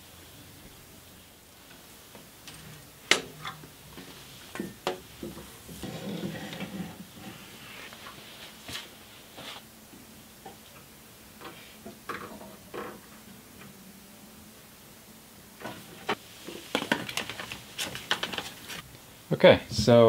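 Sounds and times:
rustling scrape: 0:05.2 - 0:09.7.

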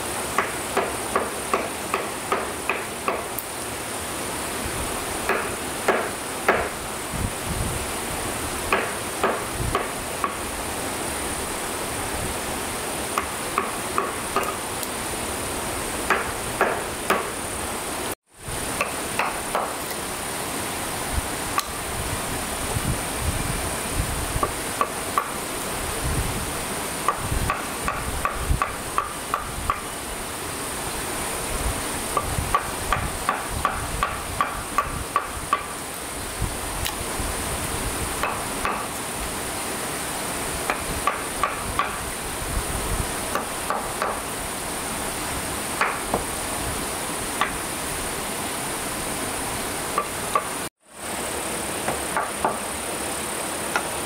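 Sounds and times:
hammer striking wood: 0:00.3 - 0:03.4, 0:05.2 - 0:06.8, 0:08.7 - 0:10.4, 0:13.2 - 0:14.6, 0:16.1 - 0:17.4, 0:18.8 - 0:19.8, 0:24.4 - 0:25.4, 0:27.1 - 0:29.9, 0:32.2 - 0:35.8, 0:38.2 - 0:39.0, 0:40.7 - 0:42.1, 0:43.3 - 0:44.3, 0:45.8 - 0:46.3, 0:47.4 - 0:47.6, 0:50.0 - 0:50.6, 0:51.8 - 0:52.7.

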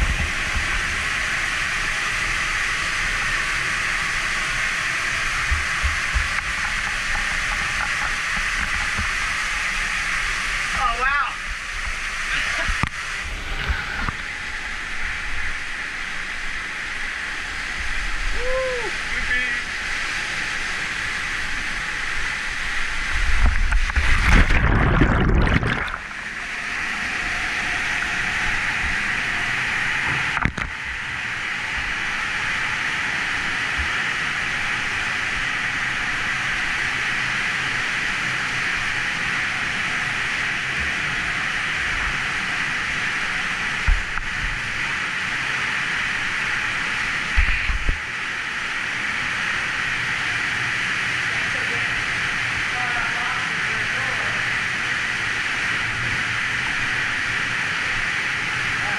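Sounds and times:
waterfall rushing: 0:00.4 - 0:30.4
loud water splashing: 0:18.0 - 0:30.9.

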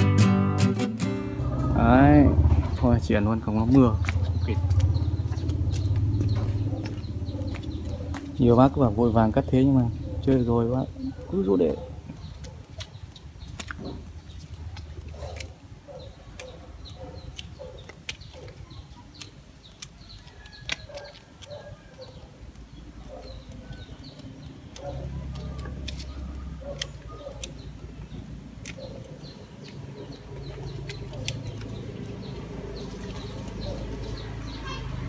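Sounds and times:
bird calls: 0:01.4 - 0:35.0
pruning shears snipping: 0:10.3 - 0:34.4.

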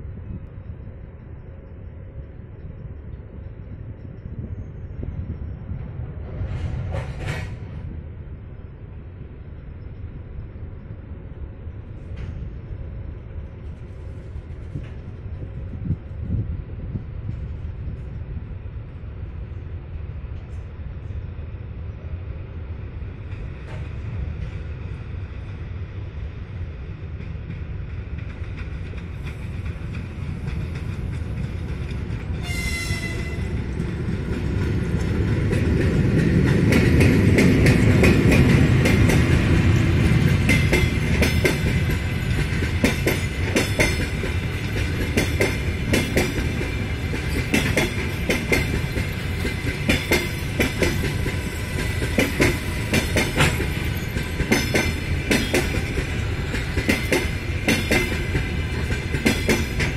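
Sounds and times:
train rumble: 0:00.0 - 0:59.9
wheels clacking over rail joints: 0:27.2 - 0:59.9
train horn blast: 0:32.4 - 0:33.6.

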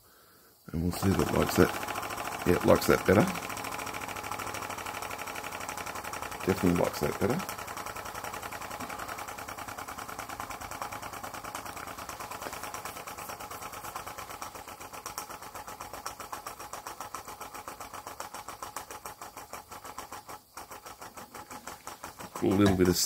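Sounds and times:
steam engine exhaust beats: 0:19.4 - 0:23.0.

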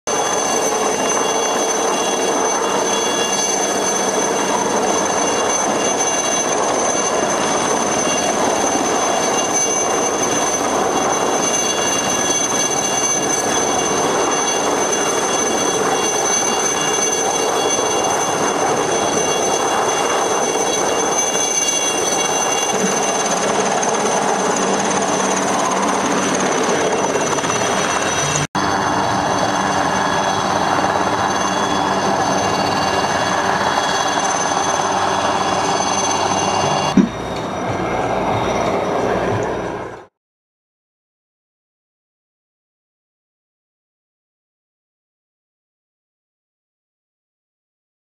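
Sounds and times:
helicopter turbine whine: 0:00.1 - 0:40.2.

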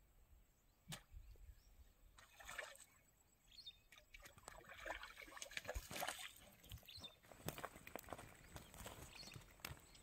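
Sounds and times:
faint water splashing: 0:02.1 - 0:03.2, 0:03.8 - 0:07.2.

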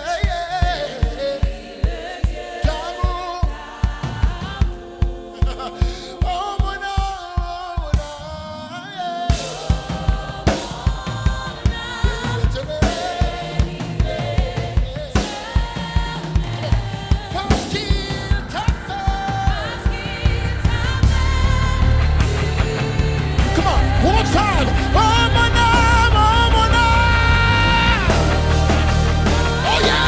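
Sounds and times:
kick drum beat: 0:00.0 - 0:08.2
congregation singing: 0:00.0 - 0:30.0.

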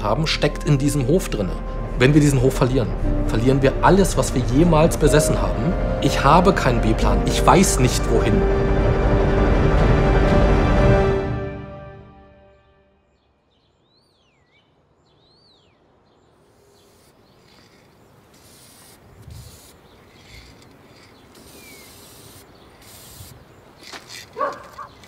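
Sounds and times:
spray can hissing: 0:16.9 - 0:24.4
spray can rattling: 0:17.4 - 0:25.0.

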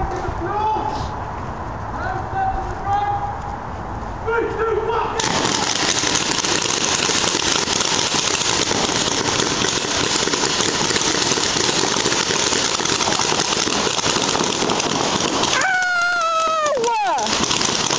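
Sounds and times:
paintball markers firing rapidly: 0:05.2 - 0:17.9.

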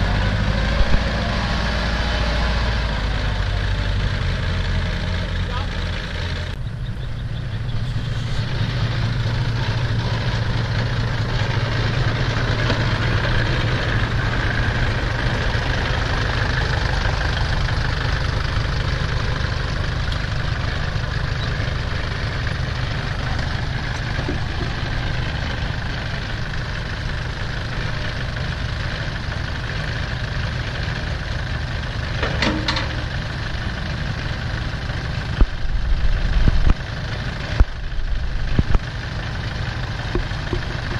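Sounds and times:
diesel engines running: 0:00.0 - 0:40.9
metallic clank: 0:32.2 - 0:33.1.

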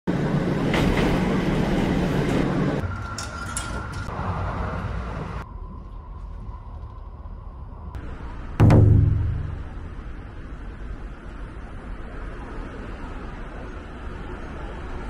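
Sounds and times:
train cabin running noise: 0:00.1 - 0:05.5
train running noise: 0:00.1 - 0:05.5.

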